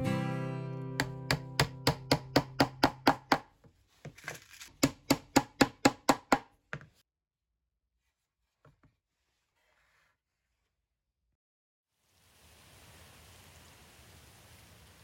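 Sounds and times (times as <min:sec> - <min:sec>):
hammer tapping nails: 0:01.0 - 0:03.5, 0:04.8 - 0:06.9.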